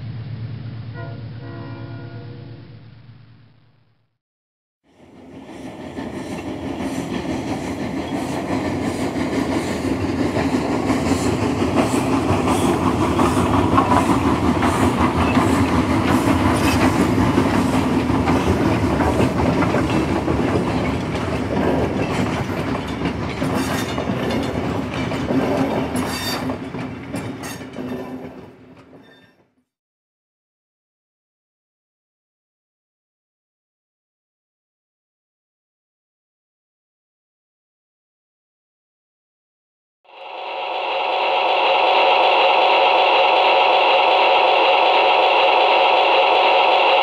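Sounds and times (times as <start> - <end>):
train rumble: 0.0 - 3.6, 4.9 - 29.4, 40.1 - 47.0
train wheels clicking over rails: 5.0 - 29.3, 40.3 - 47.0.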